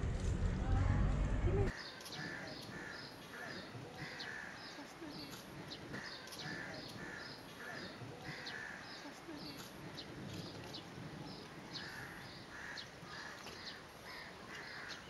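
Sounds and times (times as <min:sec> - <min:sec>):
loud low rumble: 0:00.0 - 0:01.7.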